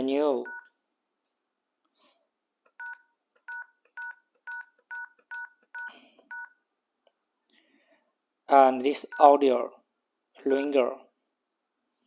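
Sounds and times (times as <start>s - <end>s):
phone keypad beeps: 0.4s - 0.7s, 2.8s - 6.6s.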